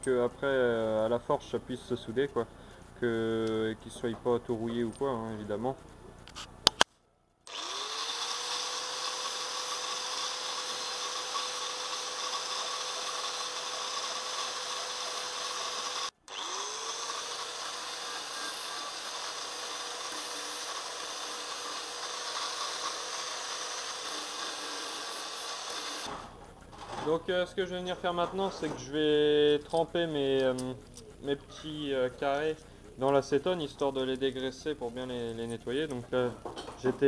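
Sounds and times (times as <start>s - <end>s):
angle grinder grinding metal: 7.5s - 26.4s.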